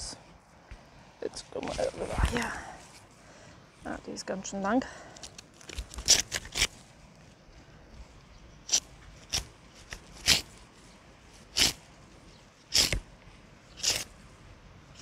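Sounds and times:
cane scraping through tool: 11.5s - 11.8s, 12.7s - 13.0s, 13.8s - 14.1s.

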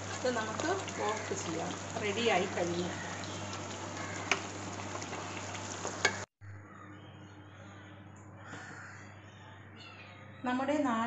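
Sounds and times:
curry sizzling and bubbling: 0.0s - 6.4s.

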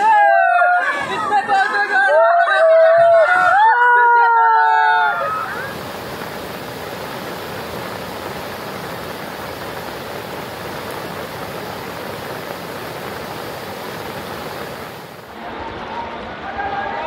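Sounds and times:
floodwater rushing: 0.0s - 16.6s.

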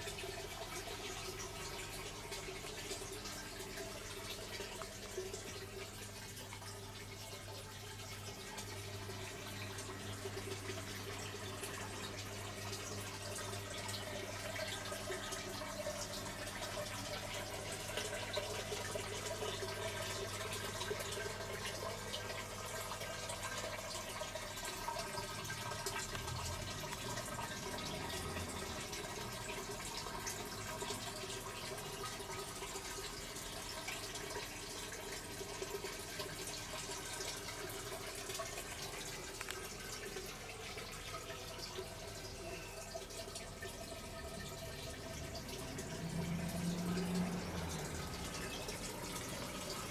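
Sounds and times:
water trickling and dripping: 0.0s - 49.9s.

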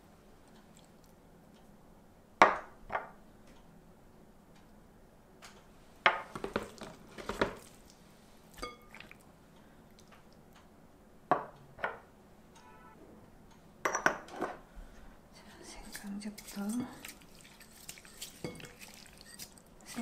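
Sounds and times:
glass clinking against glass bowl: 8.6s - 9.0s, 13.9s - 14.2s.

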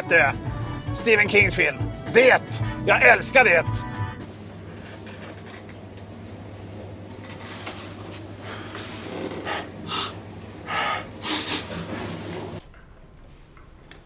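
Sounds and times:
steady low hum: 3.8s - 14.0s
man breathing heavily and snorting: 8.4s - 12.0s.

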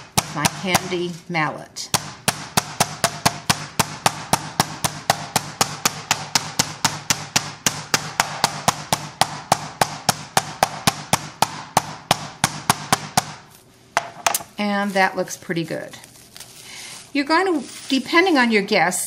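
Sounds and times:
meat mallet pounding: 0.0s - 1.0s, 1.9s - 14.4s.

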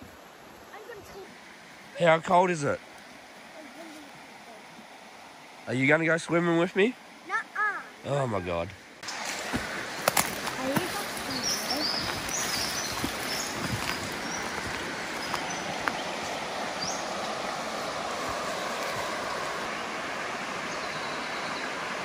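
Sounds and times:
creek water babbling over rocks: 0.0s - 22.0s
bird chirps: 10.7s - 14.6s.

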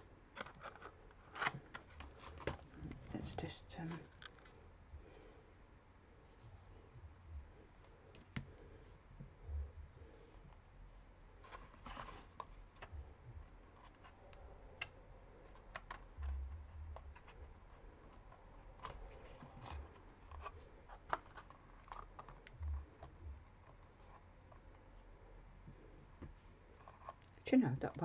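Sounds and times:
dull low thumps: 7.0s - 7.6s, 9.4s - 10.0s, 16.2s - 17.2s, 22.6s - 23.4s.

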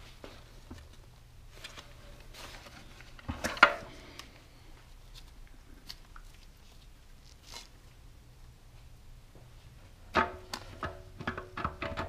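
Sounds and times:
light rustling and handling: 0.1s - 7.7s.

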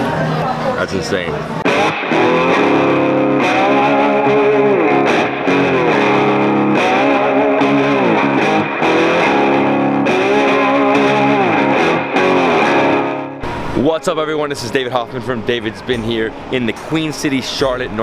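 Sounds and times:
distorted electric guitar riff: 1.6s - 13.8s.

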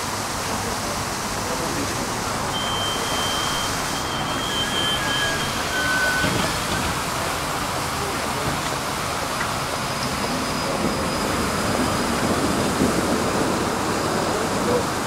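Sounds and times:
tram passing rumble: 0.1s - 15.0s
high whining tones: 2.5s - 7.0s.

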